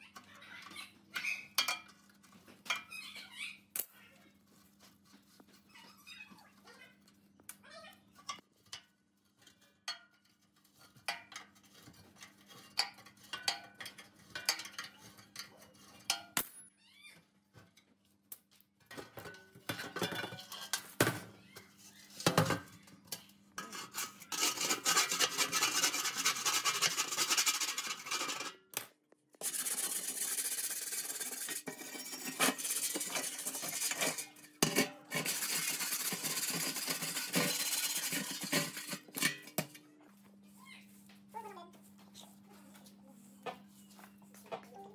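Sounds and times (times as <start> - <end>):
scraper grinding rust off steel: 23.6 - 28.5, 29.4 - 39.6.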